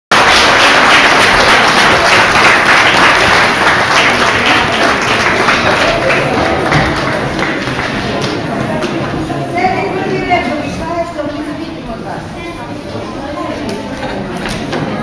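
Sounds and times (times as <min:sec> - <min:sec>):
audience applauding: 0:00.1 - 0:09.1.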